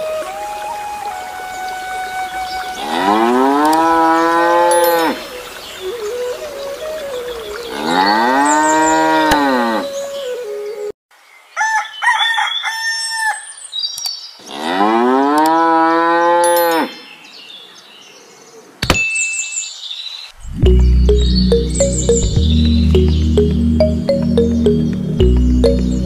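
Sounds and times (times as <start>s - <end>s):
music: 0.0s - 2.7s, 20.6s - 26.0s
cow mooing: 2.8s - 5.2s, 7.7s - 9.9s.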